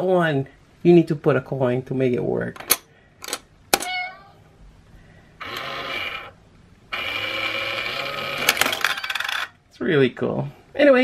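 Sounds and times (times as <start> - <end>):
small electric motor whirring: 5.4 - 9.4
coin clinking on metal: 8.5 - 9.6.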